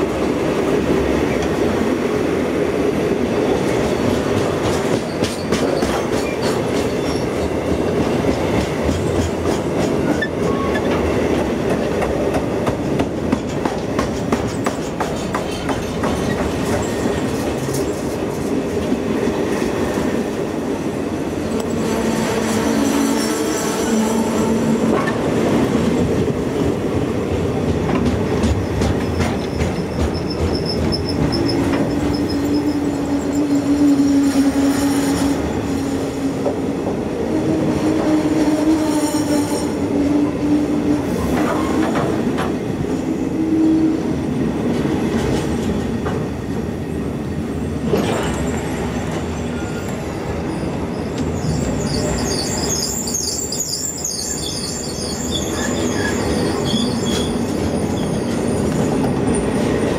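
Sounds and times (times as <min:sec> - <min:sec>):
freight train rumbling past: 0:00.0 - 0:59.9
wheels clacking over rail joints: 0:03.8 - 0:19.0, 0:27.3 - 0:33.3
steel wheels squealing: 0:05.0 - 0:07.5, 0:10.0 - 0:11.0, 0:14.8 - 0:18.0, 0:28.6 - 0:34.4, 0:48.0 - 0:59.6.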